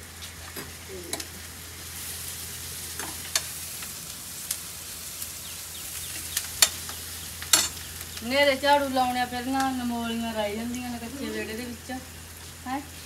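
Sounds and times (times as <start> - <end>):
onions sizzling in oil: 0.0 - 13.0
metal spoon clinking on pan: 7.5 - 7.8.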